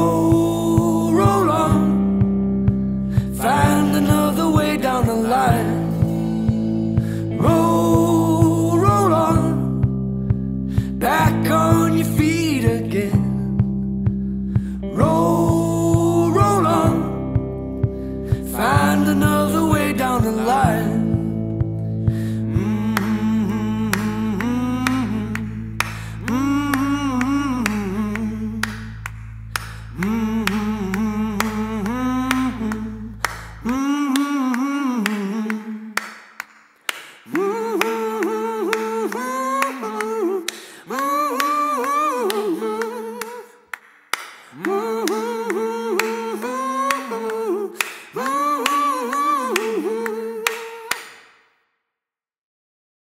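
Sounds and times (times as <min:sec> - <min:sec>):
low sustained bass tone: 0:00.0 - 0:34.0
person singing: 0:00.0 - 0:36.2, 0:36.8 - 0:43.8, 0:44.4 - 0:51.0.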